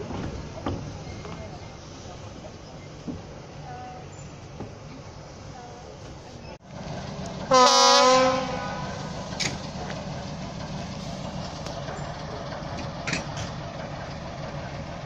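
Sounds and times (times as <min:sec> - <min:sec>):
diesel locomotive engine running: 0:00.0 - 0:15.0
train horn blast: 0:07.5 - 0:09.1.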